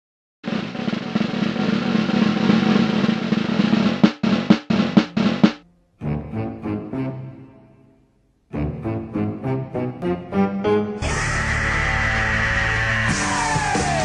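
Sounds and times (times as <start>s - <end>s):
snare drum roll: 0.4s - 5.6s.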